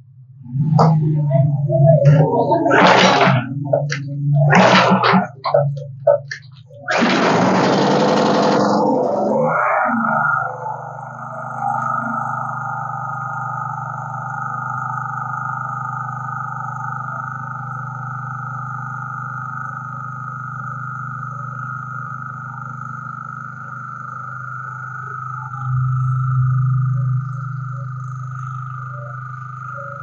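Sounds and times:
generator engine running steadily: 0.6 - 9.3.

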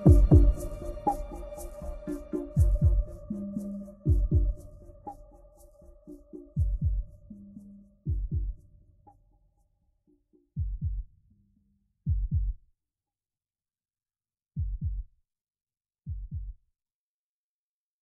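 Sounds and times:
heartbeat thumps: 0.0 - 1.6, 2.3 - 3.4, 4.0 - 4.9, 6.5 - 7.3, 8.1 - 8.6, 10.6 - 11.1, 12.1 - 12.6, 14.6 - 15.1, 16.1 - 16.6.

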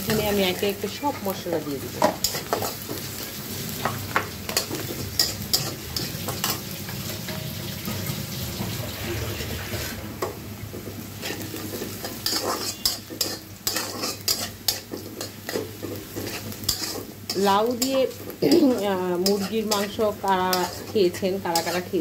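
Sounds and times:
onions sizzling in oil: 0.0 - 22.0
spatula scraping metal pan: 11.2 - 22.0.

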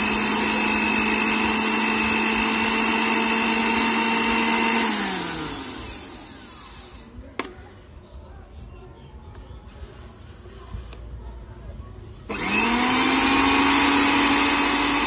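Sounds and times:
blender motor spinning: 0.0 - 7.2, 12.3 - 15.0.

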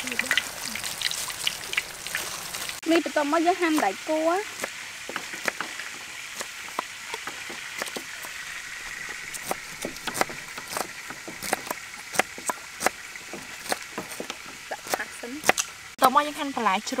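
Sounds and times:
knives chopping on wooden blocks: 4.6 - 8.4, 9.0 - 15.7.

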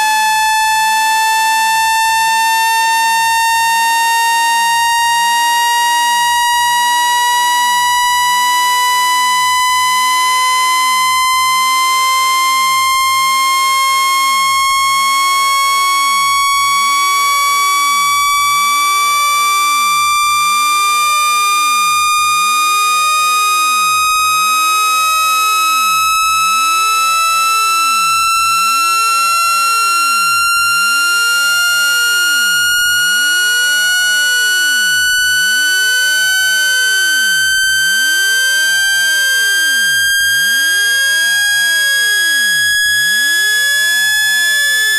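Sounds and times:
electronic tone rising in pitch: 25.6 - 44.9.

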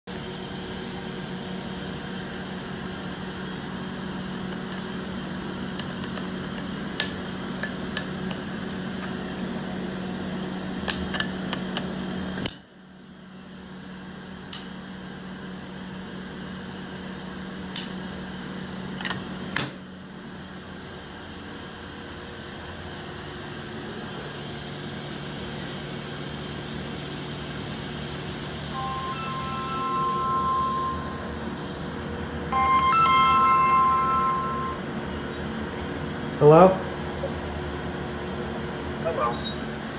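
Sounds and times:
machinery humming: 28.4 - 39.9.

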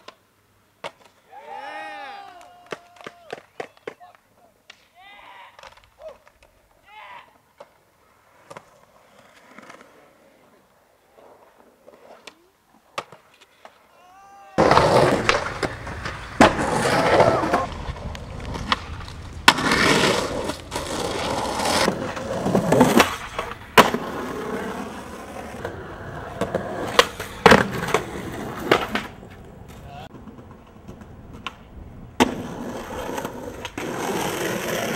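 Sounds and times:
skateboard wheels rolling on concrete: 0.0 - 34.9
skateboard tail pops and landings: 0.8 - 1.2, 12.1 - 13.8, 14.6 - 34.9
skateboard clicks: 2.2 - 4.9, 5.5 - 6.8, 14.6 - 34.9.

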